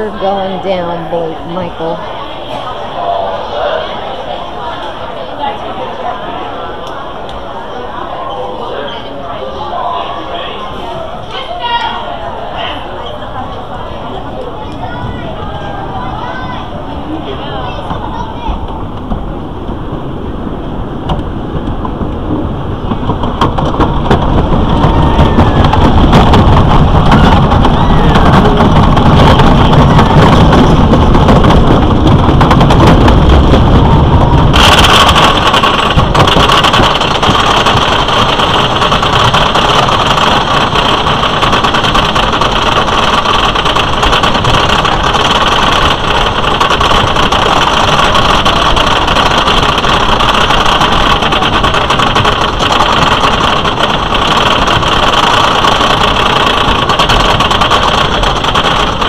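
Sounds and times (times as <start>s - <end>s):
roller coaster rumbling on track: 0.0s - 59.0s
lift hill chain drone: 18.7s - 59.0s.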